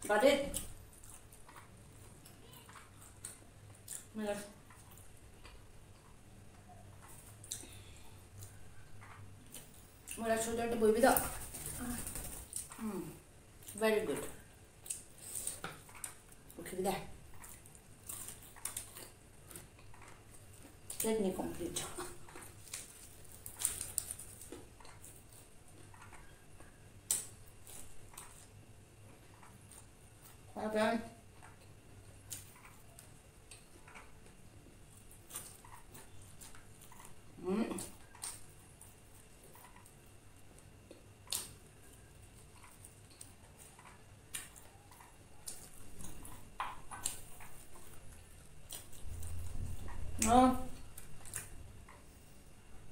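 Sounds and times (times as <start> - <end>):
fried chicken crunching: 22.1 - 26.3.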